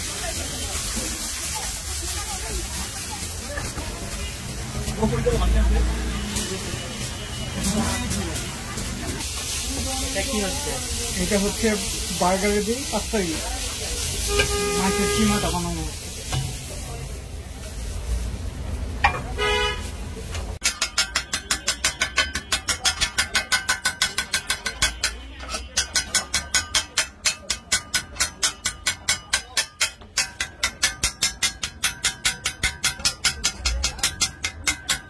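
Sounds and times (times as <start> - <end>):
faint sizzle: 0.0 - 20.6
brief horn toot: 14.2 - 15.6
metal spatula clanging on griddle: 14.2 - 15.6, 19.0 - 19.4, 20.6 - 35.0.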